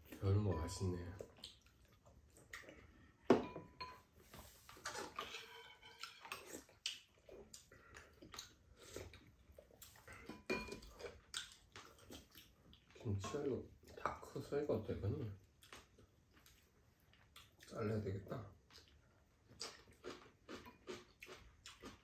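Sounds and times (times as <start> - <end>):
people chewing: 0.0 - 3.3, 4.3 - 22.0.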